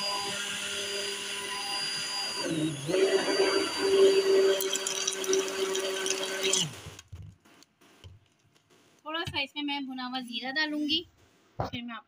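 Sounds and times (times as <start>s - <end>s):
hand blender whirring: 0.0s - 7.0s.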